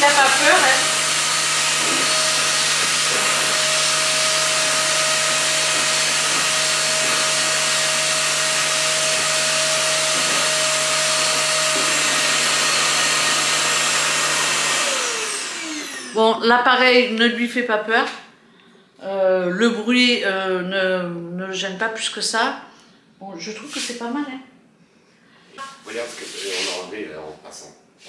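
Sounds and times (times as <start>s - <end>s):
vacuum whine and air rush: 0.0s - 16.2s.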